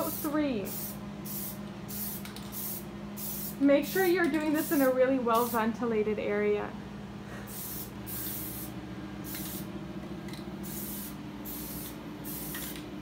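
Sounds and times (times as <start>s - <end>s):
aerosol spray can hissing: 0.0s - 5.6s, 7.5s - 8.7s, 9.3s - 9.7s, 10.6s - 12.8s.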